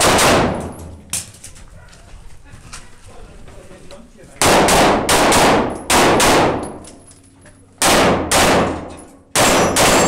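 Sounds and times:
handgun shots echoing in tunnel: 0.0 - 1.0, 4.4 - 7.0, 7.8 - 10.0.

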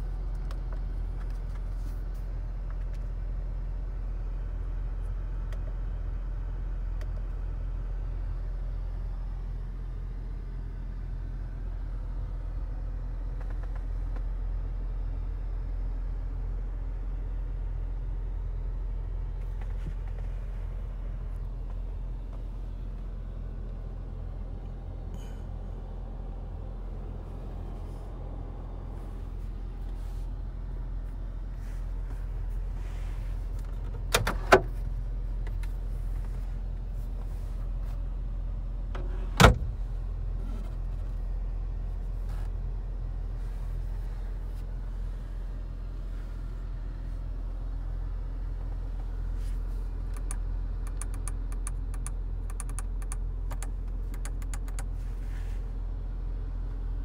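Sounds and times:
car engine idling: 0.0 - 57.0
light ticks: 50.1 - 54.9
sharp clicks: 50.1 - 54.9.

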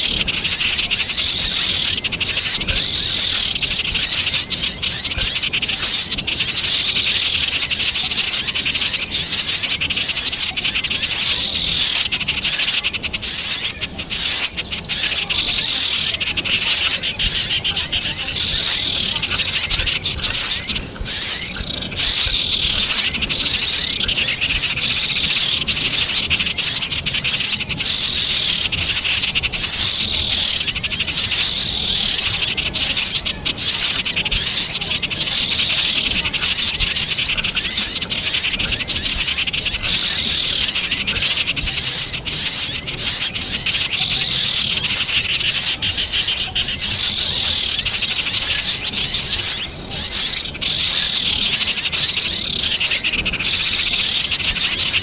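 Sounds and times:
bird chattering calls: 0.0 - 55.0
rapid high-pitched bird chirps: 0.0 - 55.0.

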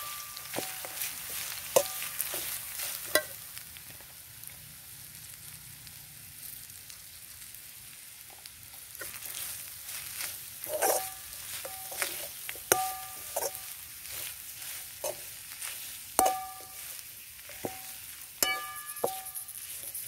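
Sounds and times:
spoon clinking against pan: 0.0 - 1.1, 1.7 - 2.5, 3.1 - 3.4, 10.7 - 13.8, 16.2 - 19.7
spoon scraping metal pan: 0.0 - 3.4, 9.0 - 20.0
food sizzling: 0.0 - 20.0.

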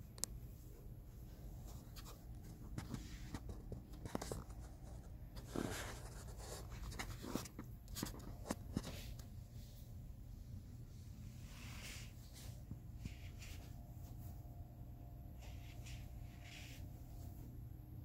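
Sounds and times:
steady low hum: 0.0 - 18.0
scratchy rustles: 1.6 - 9.4, 11.3 - 14.5, 15.3 - 17.5.

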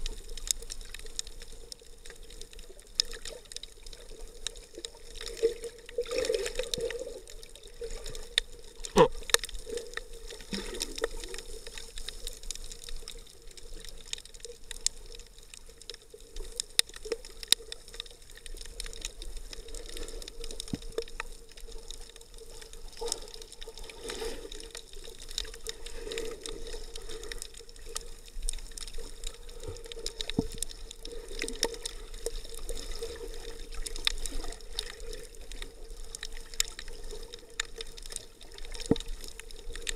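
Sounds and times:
muffled underwater water bubbling: 0.0 - 39.9.

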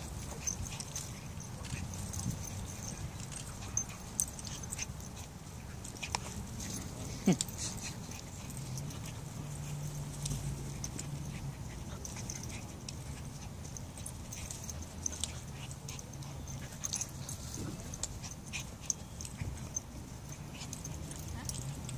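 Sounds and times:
light ticks and rustles: 0.0 - 21.9.

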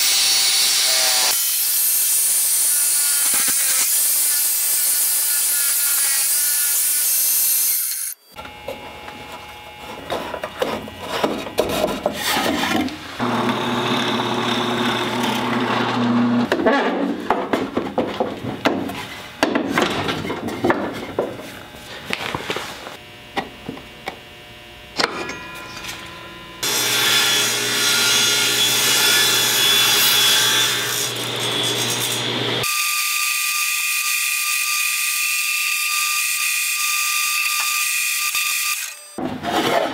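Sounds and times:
band saw cutting wood: 0.0 - 8.5, 9.8 - 17.0, 25.3 - 39.9
table saw ripping wood: 10.0 - 17.6, 26.6 - 36.7
wooden parts knocking and clattering: 16.5 - 21.4.

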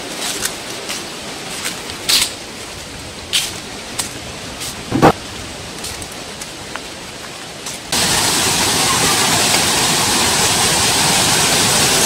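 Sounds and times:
distant running water: 0.2 - 12.0
footsteps scuffing on concrete: 4.6 - 5.2.

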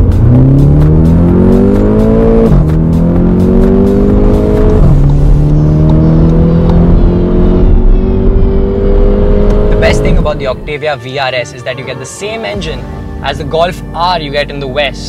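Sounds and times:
background music with a beat: 0.0 - 7.0
car engine accelerating: 0.0 - 10.7.

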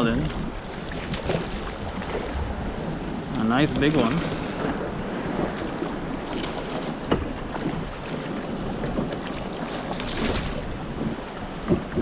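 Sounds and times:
wind on the microphone: 0.0 - 9.3
water washing against a boat: 0.0 - 12.0
fish churning at the surface: 3.6 - 10.7
sharp splashes or knocks: 8.8 - 10.6.

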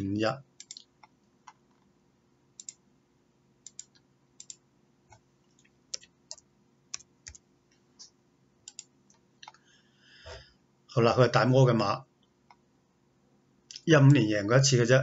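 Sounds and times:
computer mouse and keyboard clicks: 0.6 - 1.9, 2.6 - 2.8, 3.6 - 7.4, 8.7 - 9.6.

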